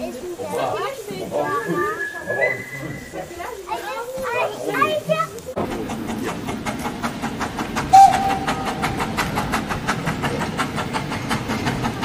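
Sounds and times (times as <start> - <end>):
train wheels clattering: 2.8 - 12.0
steam locomotive whistle: 7.9 - 8.9.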